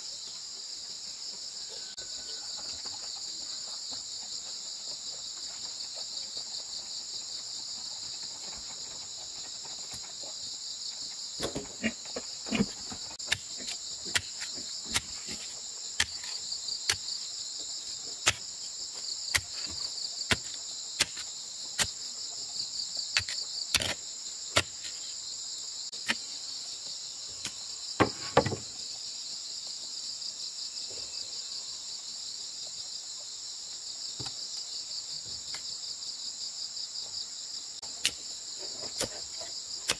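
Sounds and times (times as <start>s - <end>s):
high-pitched insect chorus: 0.0s - 39.9s
hoe chopping into earth: 11.4s - 17.2s, 18.2s - 18.5s, 19.3s - 22.0s, 23.2s - 25.0s.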